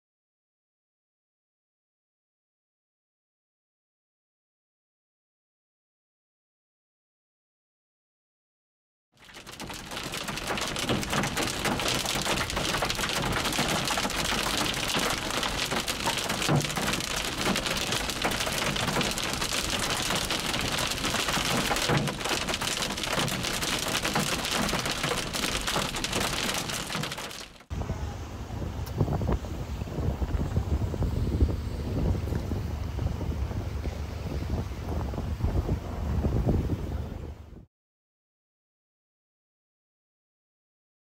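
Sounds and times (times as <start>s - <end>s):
hail and rain on vehicle: 9.2s - 27.7s
heavier hail knocks: 9.2s - 27.7s.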